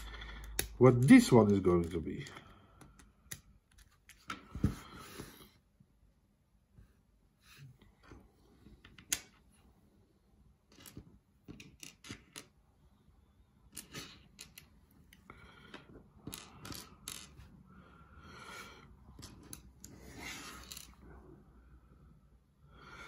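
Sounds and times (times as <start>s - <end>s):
plastic bricks clicking together: 0.0s - 3.5s, 10.7s - 12.6s, 13.7s - 14.7s.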